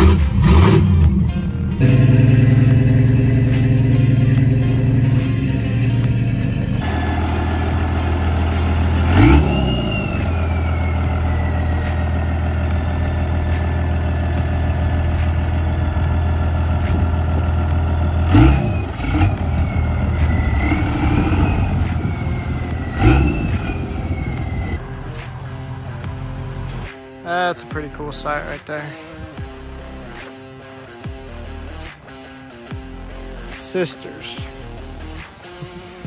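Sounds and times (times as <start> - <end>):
engine revving surges: 0.0 - 27.2
vehicle engine idling: 0.0 - 36.0.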